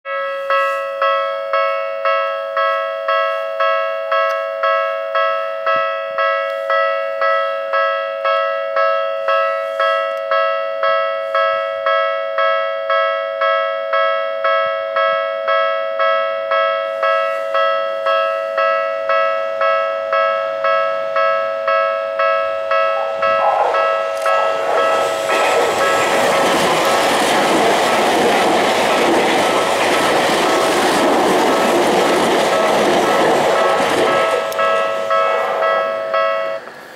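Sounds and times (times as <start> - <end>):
level crossing warning bell: 0.0 - 36.9
train rumble: 22.7 - 36.9.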